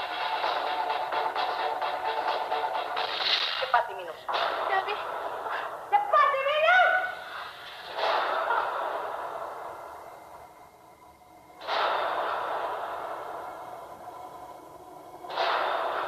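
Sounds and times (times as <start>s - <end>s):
person breathing heavily: 5.3s - 5.9s, 7.2s - 7.8s.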